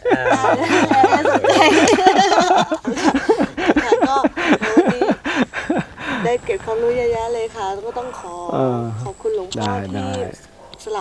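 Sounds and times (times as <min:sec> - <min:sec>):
group of people laughing: 0:00.0 - 0:06.4.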